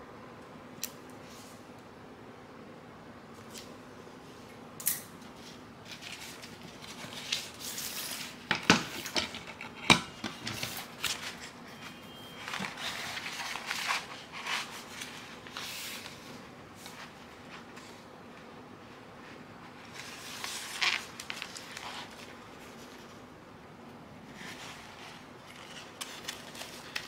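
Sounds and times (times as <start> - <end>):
plastic crinkling and rustling: 5.3 - 18.0, 19.4 - 23.2, 24.3 - 27.0.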